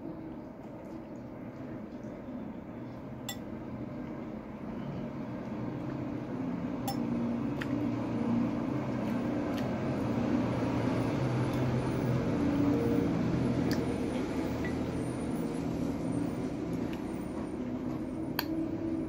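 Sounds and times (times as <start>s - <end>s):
fork clinking against ceramic bowl: 6.8s - 7.1s.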